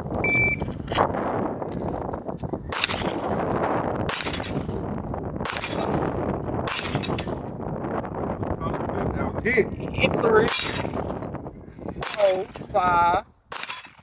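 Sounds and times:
shot timer beep: 0.2 - 0.6
pistol shots: 2.7 - 3.4, 4.0 - 4.8, 5.4 - 7.3.

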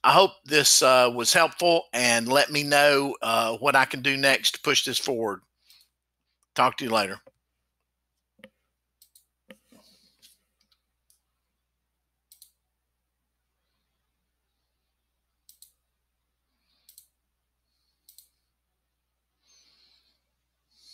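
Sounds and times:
computer mouse clicks: 8.4 - 11.3, 12.3 - 12.6, 15.4 - 15.8, 16.8 - 17.2, 18.0 - 18.5.

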